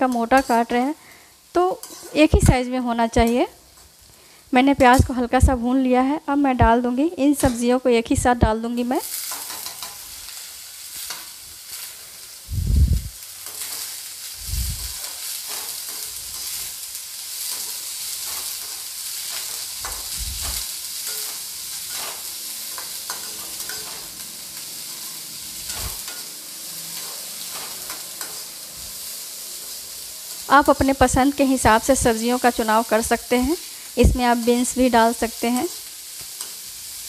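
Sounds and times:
vegetables sizzling in hot fat: 0.0 - 37.0
metal spoon scraping and clinking: 0.1 - 0.8, 1.8 - 2.3, 9.1 - 10.2, 17.4 - 28.6.

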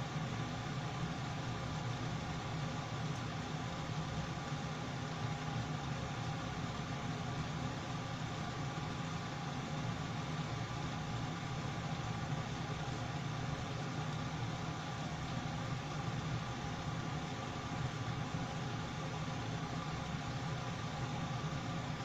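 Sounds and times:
extractor fan humming: 0.0 - 22.0.

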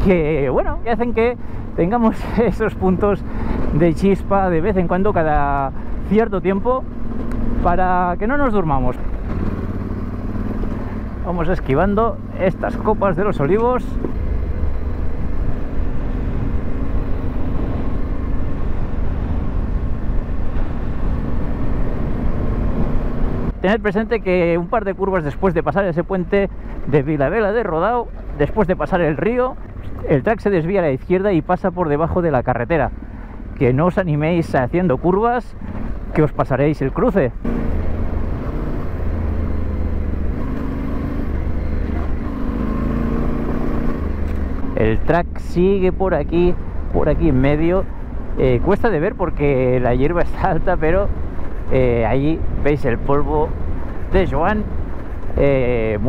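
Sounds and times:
motorcycle engine running: 2.9 - 24.7.

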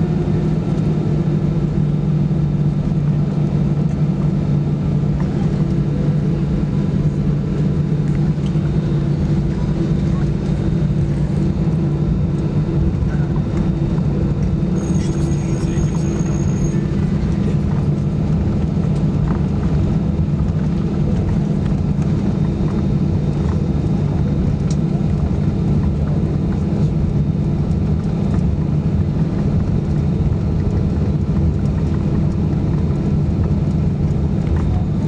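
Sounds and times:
airliner cabin drone: 0.0 - 35.0
cabin air system hum: 3.2 - 35.0.

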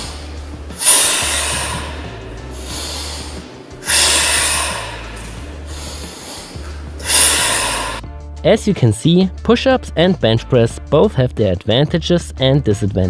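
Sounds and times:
man breathing hard: 0.0 - 8.0.

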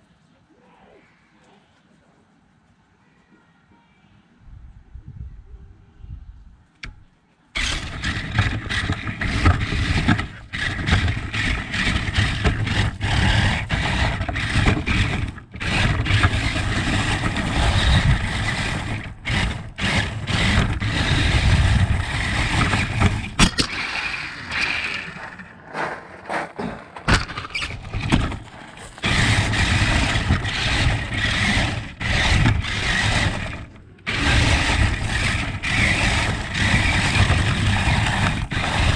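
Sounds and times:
remote-control car motor whirring: 7.6 - 25.5, 27.1 - 38.9.

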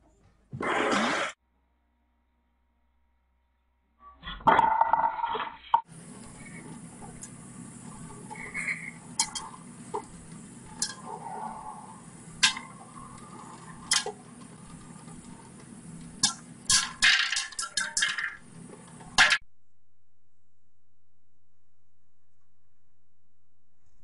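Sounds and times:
faint steady hum: 5.8 - 24.0.

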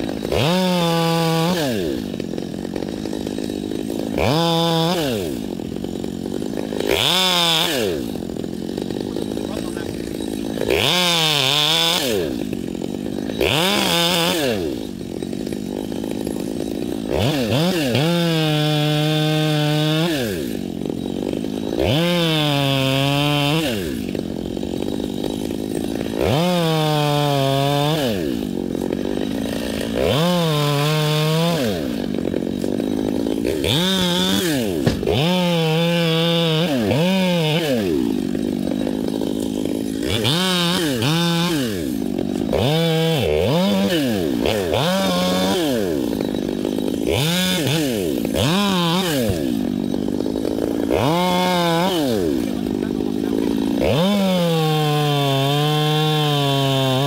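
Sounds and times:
chainsaw revving: 0.0 - 57.0.

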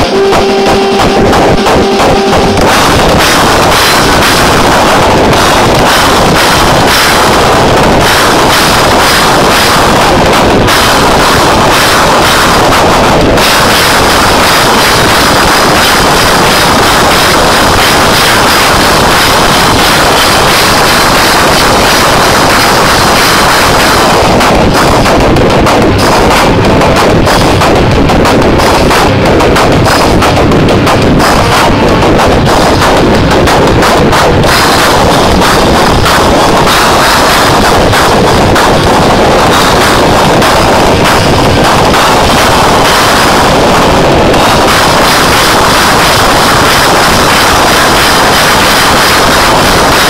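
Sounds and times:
distorted live rock band: 0.0 - 50.0
fast hard-hit drums and cymbals: 0.0 - 50.0.

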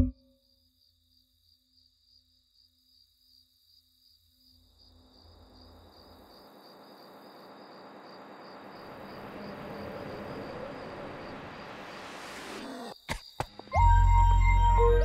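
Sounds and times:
crickets chirping: 0.1 - 13.8
broad rushing noise: 7.7 - 12.6.

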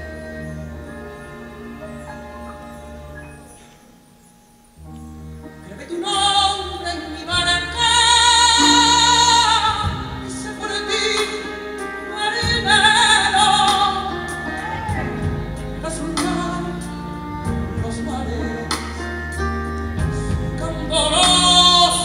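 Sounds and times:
musical accompaniment: 0.0 - 22.0.

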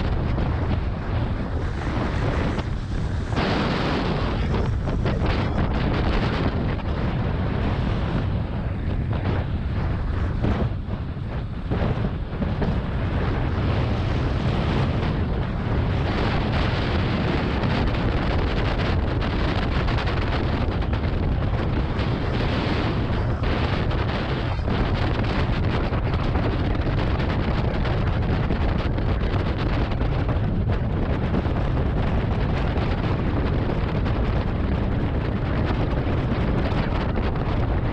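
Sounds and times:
wind buffeting microphone: 0.0 - 37.9
sled runners scraping snow: 0.4 - 6.4.

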